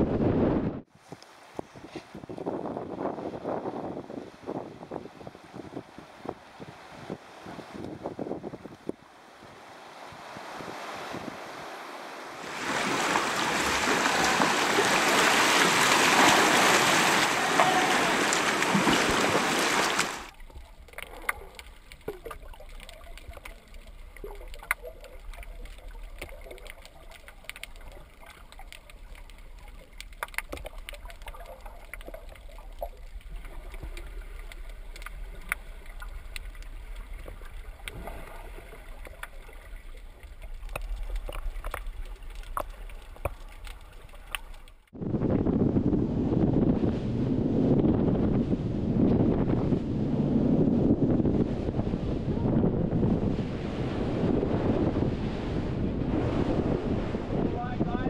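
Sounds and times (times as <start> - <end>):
gurgling bubbles: 18.6 - 44.8
sharp clicks underwater: 19.9 - 44.9.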